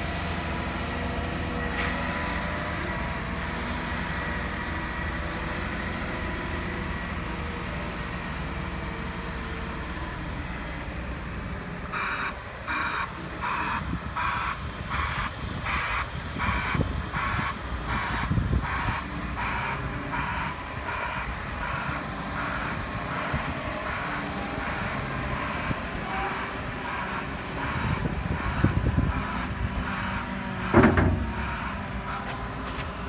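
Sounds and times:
diesel engine rumbling: 0.0 - 33.0
reversing alarm beeping: 11.9 - 24.7, 25.4 - 32.2.

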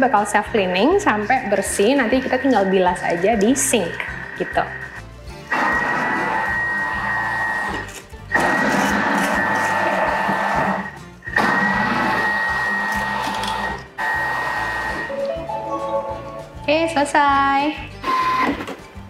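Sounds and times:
food processor blade whining: 1.6 - 15.1, 18.0 - 18.7.

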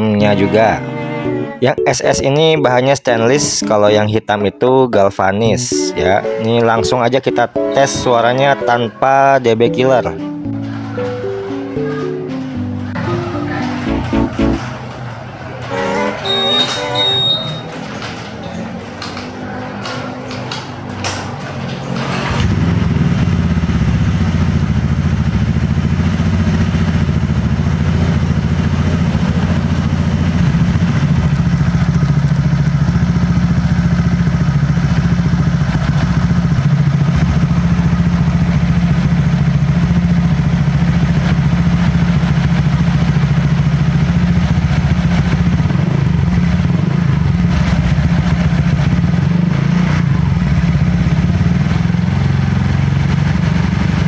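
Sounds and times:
motorcycle engine idling: 22.5 - 54.0.

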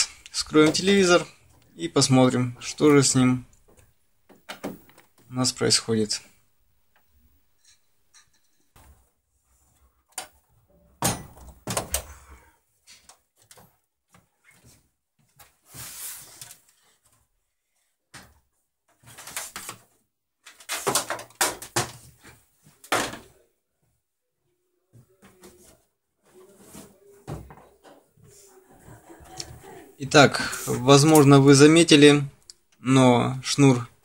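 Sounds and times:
plastic cover knocking and clattering: 20.5 - 23.3.

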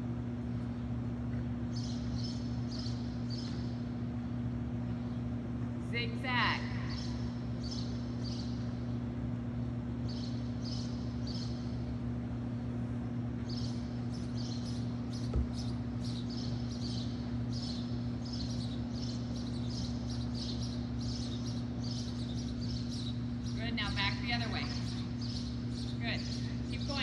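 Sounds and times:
steady low hum: 0.0 - 27.0
small birds chirping: 0.3 - 27.0
soft thump: 15.3 - 15.6.

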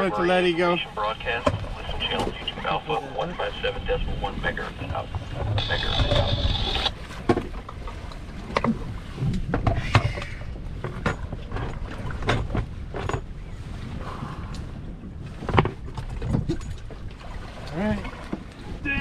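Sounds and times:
wind and water against hull: 0.0 - 19.0.

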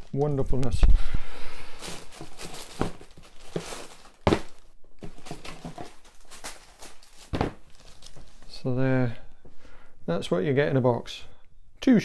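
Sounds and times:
tissue paper rustling: 1.7 - 8.7.

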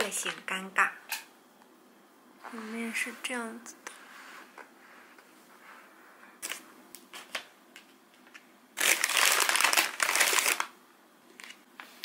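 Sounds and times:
packaging bag crinkling: 8.8 - 10.7.

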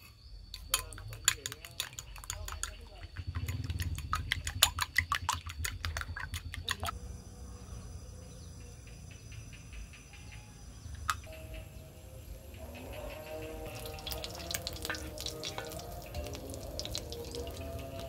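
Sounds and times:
spoon clinking in glass bowl: 0.6 - 6.9
oil pouring: 13.6 - 18.0.

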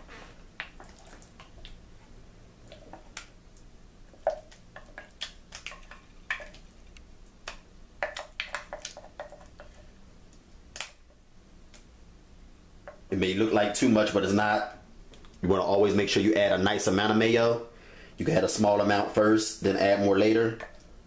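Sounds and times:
soft wet squelches: 0.0 - 12.0.

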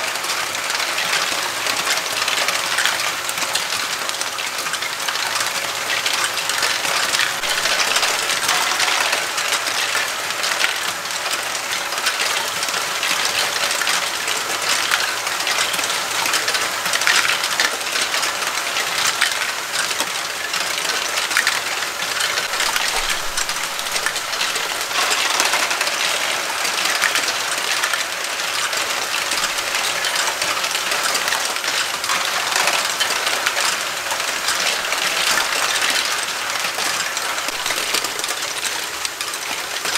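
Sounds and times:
plastic balls clattering: 6.9 - 11.0, 21.4 - 36.4.

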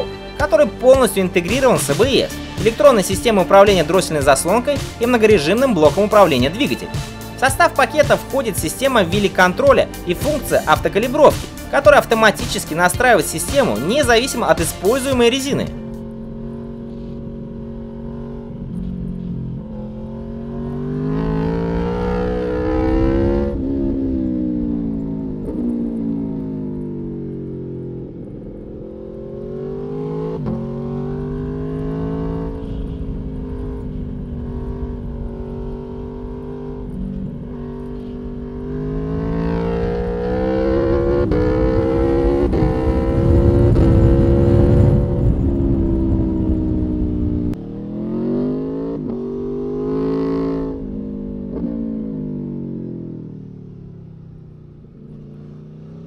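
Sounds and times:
motorcycle engine accelerating: 0.0 - 56.0
wind rushing over microphone: 32.8 - 35.9, 40.9 - 47.6.

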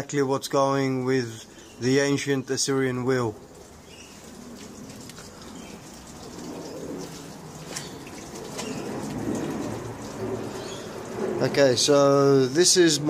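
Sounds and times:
dove cooing: 3.4 - 11.5.

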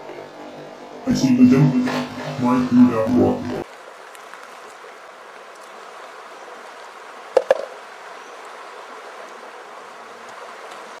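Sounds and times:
stream running over pebbles: 3.6 - 11.0
sharp knocks: 7.4 - 7.8.

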